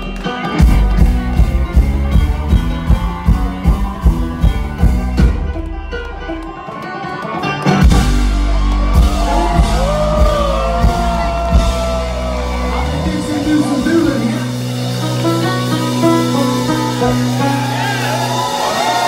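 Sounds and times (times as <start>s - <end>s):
live band playing: 0.0s - 19.0s
people shouting: 8.5s - 13.0s, 16.5s - 19.0s
banjo solo: 15.0s - 18.1s.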